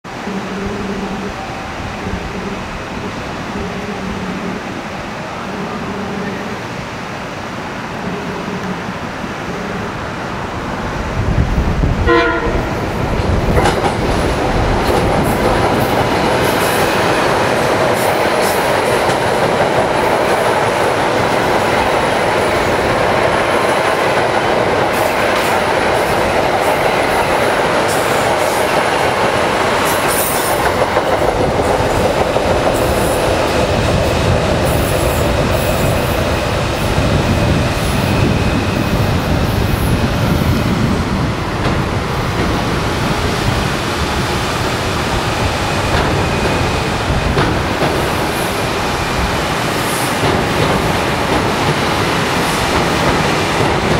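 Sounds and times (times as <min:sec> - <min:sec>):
train wheels rumbling on rail: 0:00.1 - 0:53.9
train horn toot: 0:12.0 - 0:12.8.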